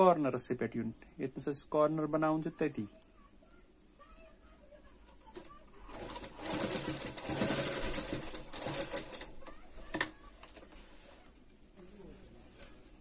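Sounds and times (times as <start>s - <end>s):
sewing machine stitching: 5.3s - 10.6s.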